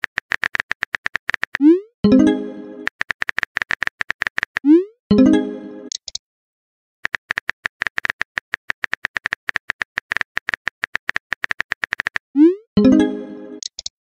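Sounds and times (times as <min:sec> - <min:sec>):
message chime: 0:02.1 - 0:02.9, 0:05.1 - 0:05.9, 0:12.8 - 0:13.6.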